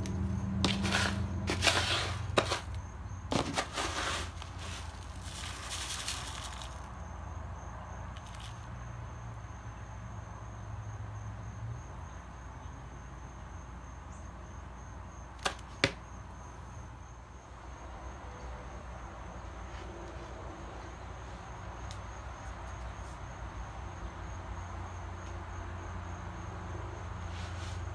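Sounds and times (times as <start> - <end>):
cat litter rustling in scoop: 0.6 - 6.9.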